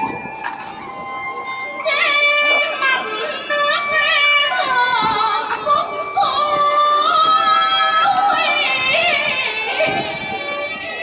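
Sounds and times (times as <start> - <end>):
traditional instruments playing: 0.0 - 11.0
woman singing: 1.8 - 10.3.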